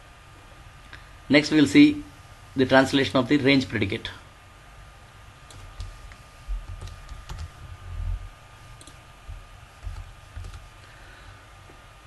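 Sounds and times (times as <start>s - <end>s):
keyboard and mouse clicks: 5.5s - 7.6s, 8.8s - 10.7s.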